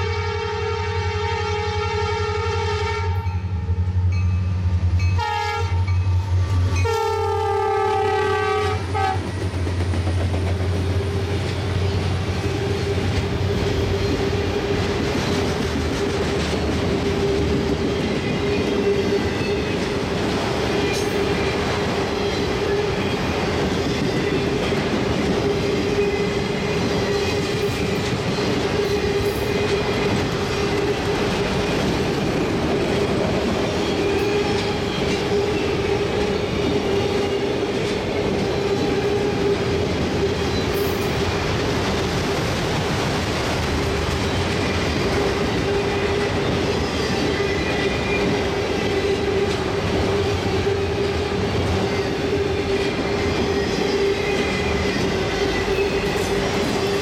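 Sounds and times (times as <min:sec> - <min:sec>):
locomotive air horn blasts: 0:00.0 - 0:03.3, 0:05.2 - 0:05.8, 0:06.8 - 0:09.2
diesel locomotive engine drone: 0:00.0 - 0:57.0
train wheels clattering on rails: 0:05.8 - 0:57.0.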